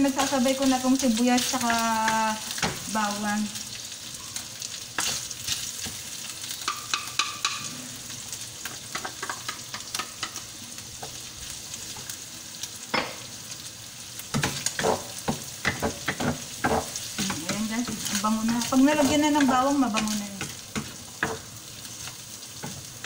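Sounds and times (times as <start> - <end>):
meat sizzling in frying pan: 0.0 - 23.0
spatula scraping pan: 14.3 - 23.0.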